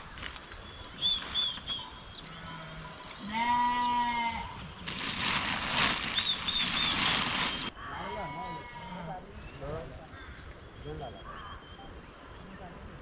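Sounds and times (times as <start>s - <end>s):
sheep bleating: 3.2s - 4.6s, 7.8s - 9.2s.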